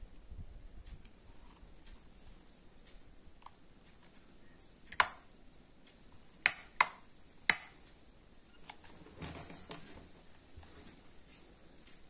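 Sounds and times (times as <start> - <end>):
soft rustle: 0.0 - 4.9, 7.8 - 12.0
hard plastic parts clicking: 4.9 - 5.3.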